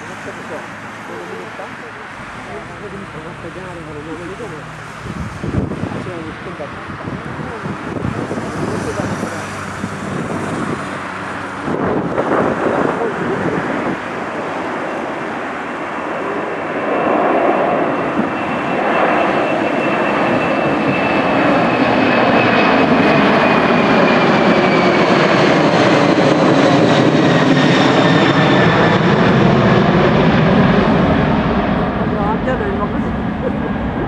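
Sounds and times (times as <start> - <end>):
jet engines at takeoff: 0.0 - 34.0.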